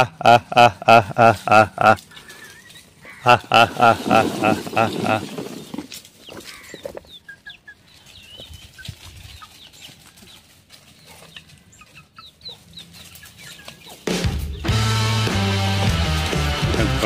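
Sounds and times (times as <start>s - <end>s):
chickens clucking: 0.0s - 17.0s
background music: 14.0s - 17.0s.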